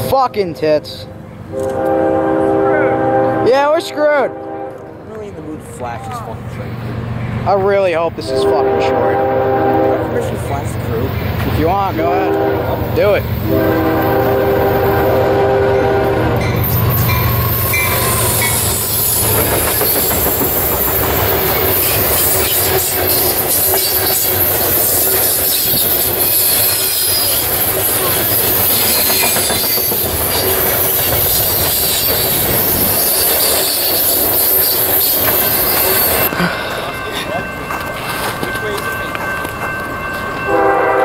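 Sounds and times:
diesel locomotive engine passing: 0.0s - 41.0s
train horn: 0.4s - 5.0s, 8.2s - 10.4s, 12.0s - 19.2s, 40.4s - 41.0s
high wheel squeal: 16.5s - 36.3s.

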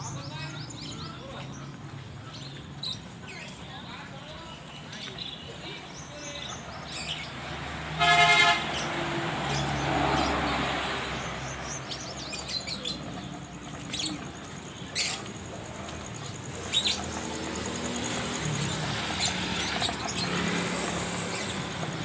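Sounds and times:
road traffic noise: 0.0s - 22.0s
vehicle horn toot: 8.0s - 8.9s.

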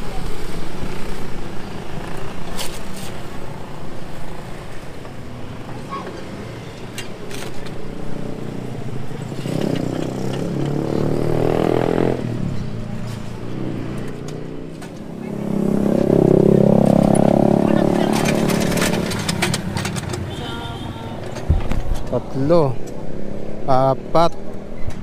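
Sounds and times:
street traffic: 0.0s - 25.0s
motorcycle passing close: 7.8s - 20.3s.

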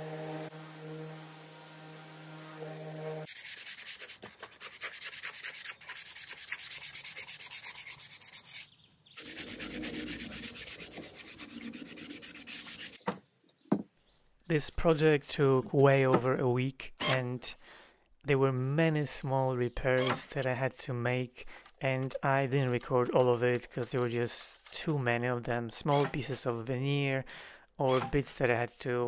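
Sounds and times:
electric sander humming: 0.0s - 3.8s, 9.2s - 13.0s
sandpaper rubbing on wood: 2.0s - 13.0s.

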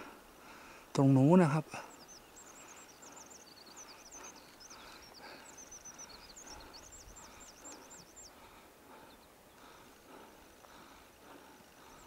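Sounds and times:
small bird twittering: 1.3s - 8.4s
footsteps on stony ground: 7.3s - 12.0s.

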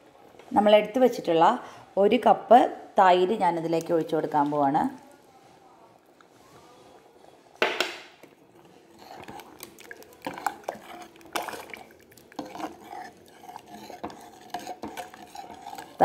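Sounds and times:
spoon scraping metal pot: 8.3s - 16.0s
spoon clanking on pot: 9.0s - 16.0s.

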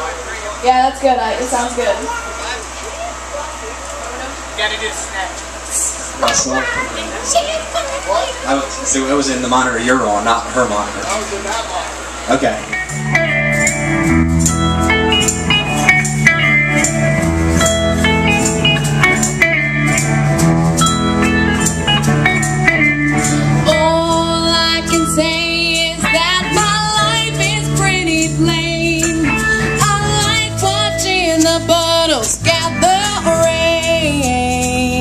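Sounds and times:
live rock band playing: 5.6s - 35.0s
person singing with vibrato: 23.1s - 35.0s.

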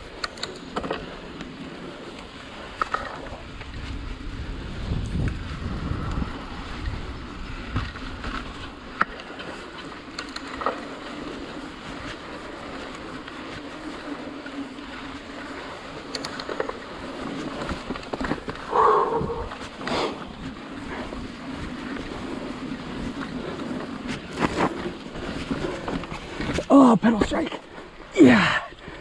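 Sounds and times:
bike clicks and rattles: 0.0s - 28.1s
bike tyre noise on dirt: 0.0s - 29.0s
wind buffeting microphone: 3.2s - 9.0s, 16.3s - 26.7s.

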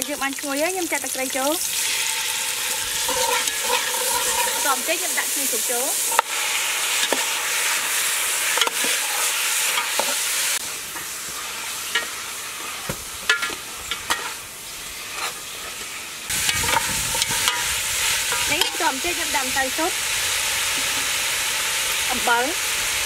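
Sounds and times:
meat sizzling in a pot: 0.0s - 23.0s
metal ladle clinking and scraping pot: 1.8s - 4.9s, 11.9s - 14.4s, 16.4s - 19.0s.

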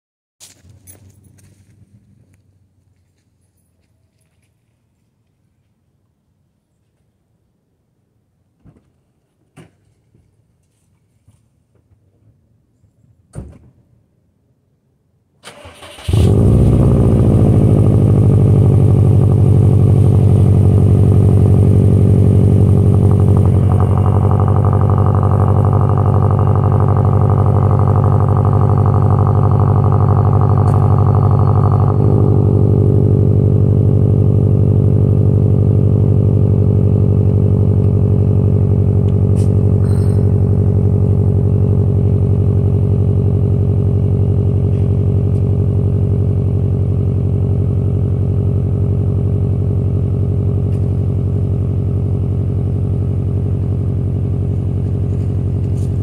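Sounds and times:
engine cranking: 15.4s - 33.0s
car engine idling: 15.5s - 56.0s.

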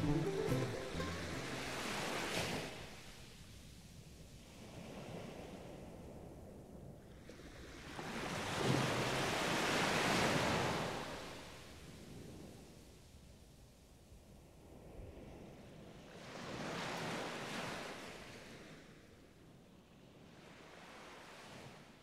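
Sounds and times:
ocean waves washing onto beach: 0.0s - 13.0s, 14.6s - 18.8s, 20.4s - 22.0s.

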